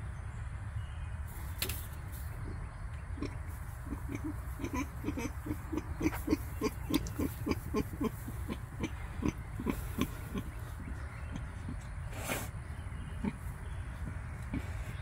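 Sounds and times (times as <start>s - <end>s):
pig grunting softly: 3.2s - 15.0s.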